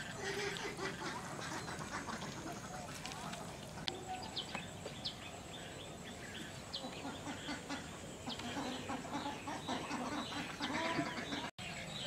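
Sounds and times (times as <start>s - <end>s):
fowl clucking: 0.0s - 3.3s, 6.8s - 11.5s
small birds chirping: 0.0s - 12.0s.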